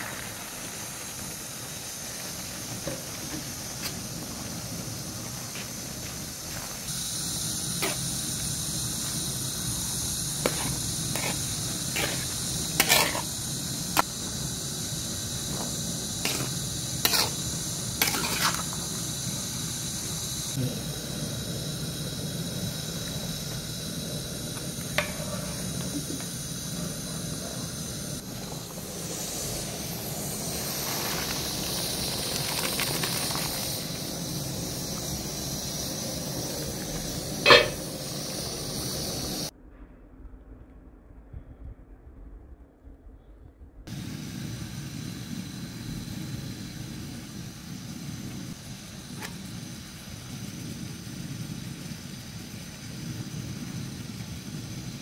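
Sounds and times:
gas burner hissing: 0.0 - 39.6, 43.8 - 55.0
metal spoon scraping cooking pot: 10.4 - 13.2, 16.2 - 17.4, 37.5 - 37.8.

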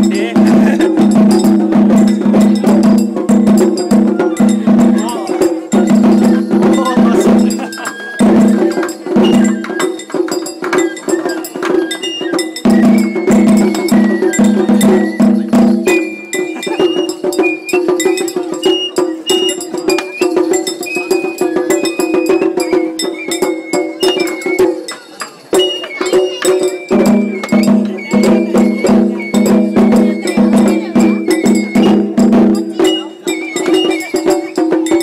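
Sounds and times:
taiko drum beat: 0.0 - 35.0
high flute melody: 7.6 - 35.0.

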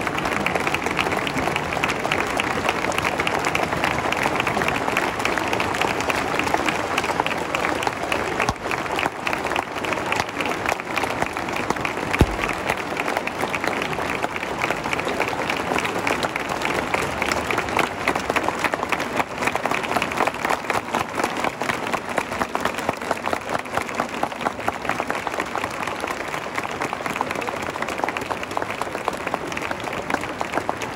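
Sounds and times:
crowd clapping: 0.0 - 30.9
hubbub of voices: 0.0 - 30.9
low thump: 12.2 - 12.7.

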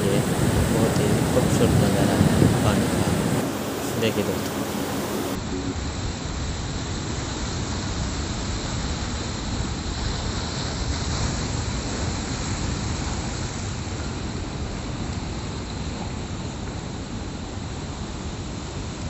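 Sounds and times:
surf breaking on rocky shore: 0.0 - 14.3.

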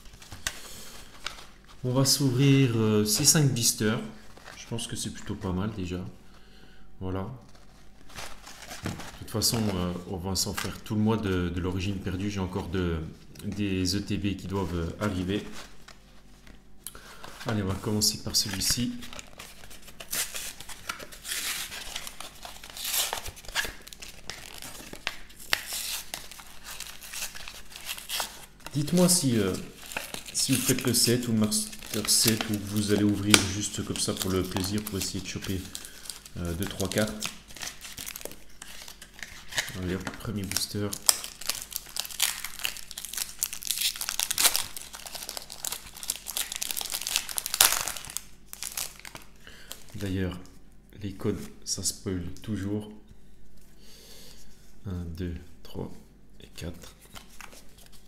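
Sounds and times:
cardboard packaging tearing: 18.6 - 49.2.

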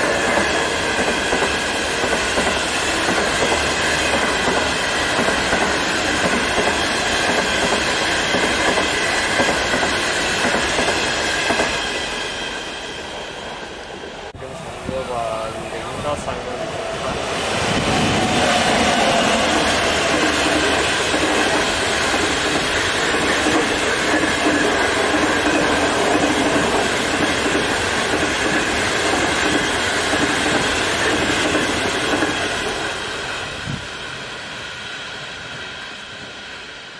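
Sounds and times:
clickety-clack over rail joints: 0.0 - 11.8, 17.8 - 32.9
train wheels rumbling on rail: 0.0 - 36.9.

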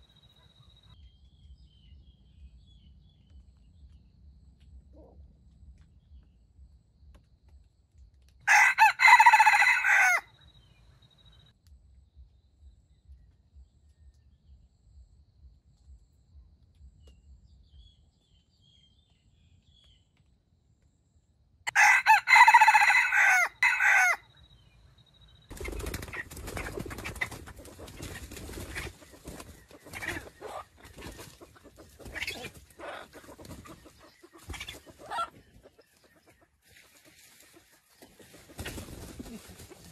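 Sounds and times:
rooster crowing: 8.5 - 10.3, 21.7 - 24.2
rustling and scratching: 36.6 - 39.9.

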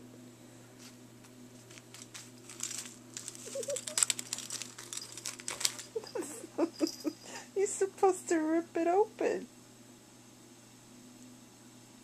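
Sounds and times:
wrapping paper crinkling: 0.8 - 6.9.

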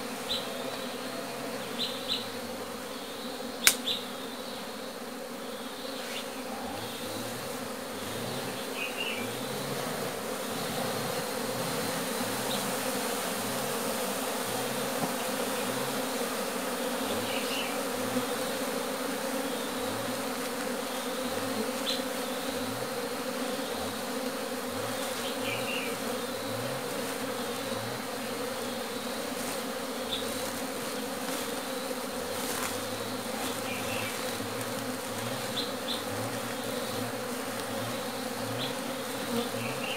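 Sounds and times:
honeybees buzzing: 0.0 - 39.9
single bees droning close: 0.0 - 39.9.

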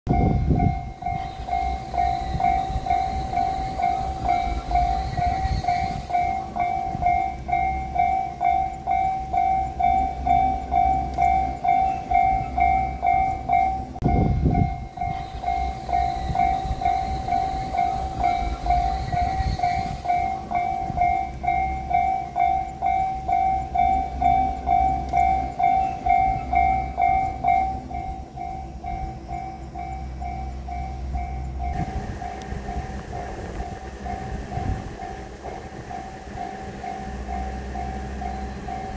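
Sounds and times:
level crossing warning bell: 0.1 - 38.9
low rumble: 20.6 - 38.9.

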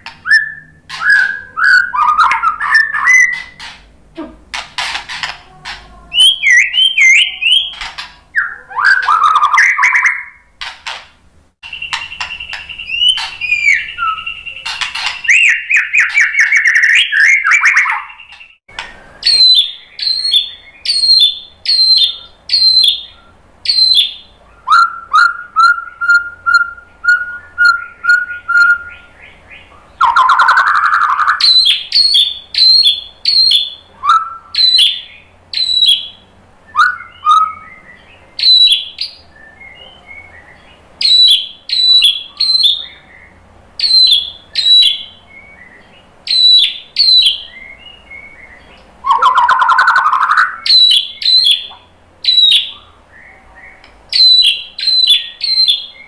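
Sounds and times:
bird chirping song: 0.0 - 11.0, 11.6 - 56.0
lower whistled bird notes: 11.6 - 56.0.

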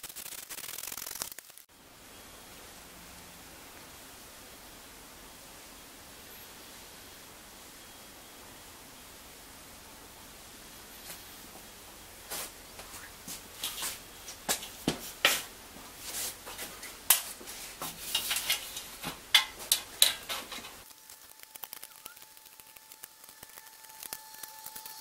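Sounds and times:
faint steady tone: 1.7 - 25.0
sheet metal clinking and scraping: 16.8 - 20.8.

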